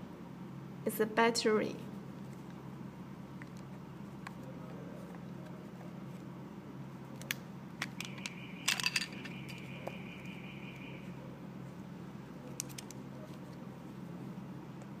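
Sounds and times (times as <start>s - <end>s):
faint high-pitched tone: 8.0s - 11.5s.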